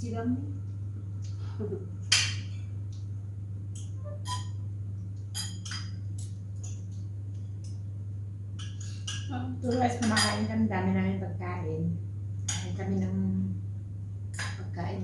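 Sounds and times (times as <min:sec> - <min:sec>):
steady low hum: 0:00.0 - 0:15.0
cutlery clinking on plates: 0:05.3 - 0:06.0.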